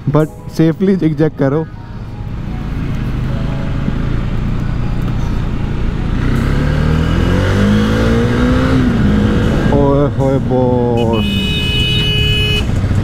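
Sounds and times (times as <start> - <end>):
motorcycle engine accelerating: 2.4 - 10.9.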